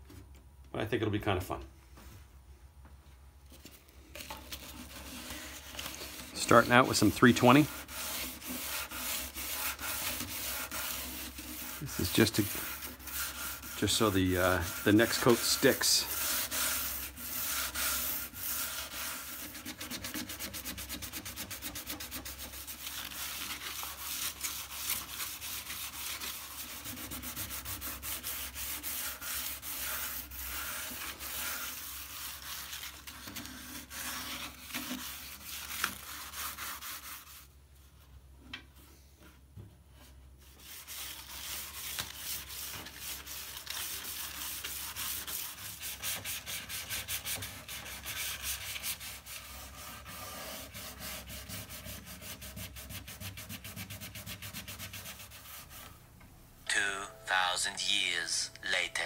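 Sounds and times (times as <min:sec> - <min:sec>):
sandpaper rubbing on wood: 0:04.5 - 0:37.5, 0:40.4 - 0:55.9.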